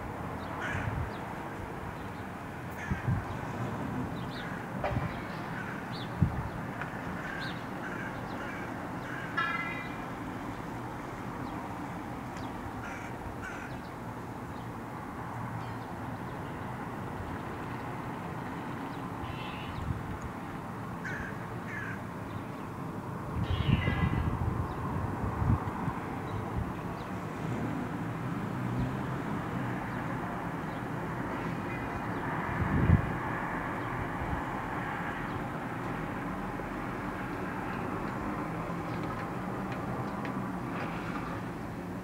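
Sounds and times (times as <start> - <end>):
distant traffic rumble: 0.0 - 42.0
crows cawing: 0.6 - 1.0, 2.7 - 3.2, 5.5 - 5.9, 6.9 - 10.0, 12.8 - 13.8, 19.2 - 19.8, 21.0 - 22.1, 31.6 - 32.1.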